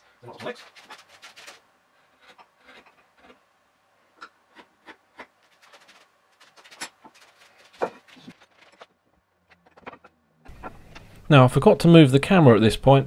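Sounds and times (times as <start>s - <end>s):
wooden parts clicking and knocking: 4.2s - 11.1s.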